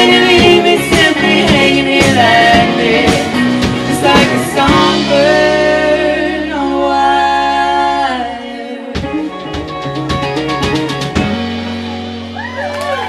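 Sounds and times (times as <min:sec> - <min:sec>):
drum hits: 0:00.0 - 0:05.8
woman singing: 0:00.0 - 0:09.4
live band playing: 0:00.0 - 0:13.0.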